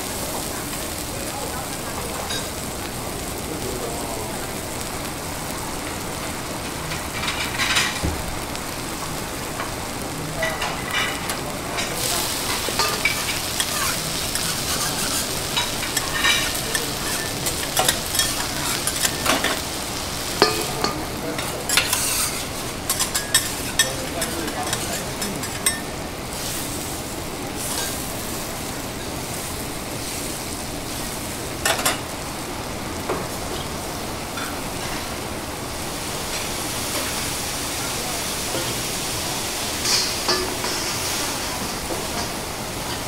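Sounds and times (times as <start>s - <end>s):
food sizzling on griddle: 0.0s - 43.0s
metal spatulas scraping and clicking: 20.4s - 25.8s.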